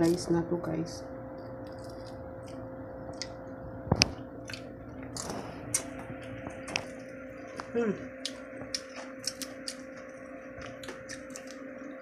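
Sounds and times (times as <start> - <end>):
steady low hum: 0.0 - 12.0
seafood shells clicking and crackling: 1.6 - 2.6, 7.6 - 9.9.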